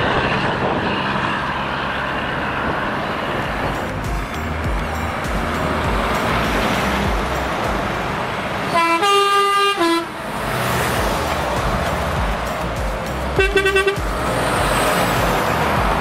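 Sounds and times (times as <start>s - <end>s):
truck engines passing: 0.0s - 16.0s
truck horn: 8.6s - 10.3s, 13.4s - 14.4s.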